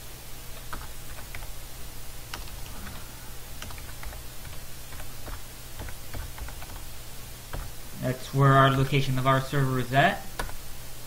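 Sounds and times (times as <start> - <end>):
steady low hum: 0.0 - 11.0
keyboard keys clicking: 0.6 - 1.5, 2.3 - 3.0, 3.6 - 6.9, 7.5 - 7.8, 10.4 - 10.6.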